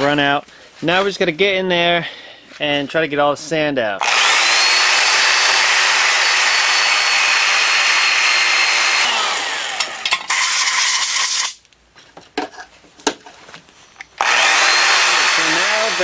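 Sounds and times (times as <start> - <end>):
electric drill grinding metal: 4.0 - 11.6, 14.2 - 16.0.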